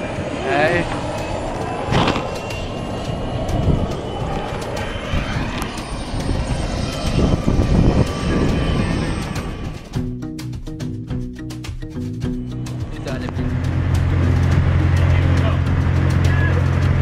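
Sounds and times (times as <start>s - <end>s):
wind gusts on microphone: 0.0s - 10.0s
propeller aircraft engine running: 0.0s - 17.0s.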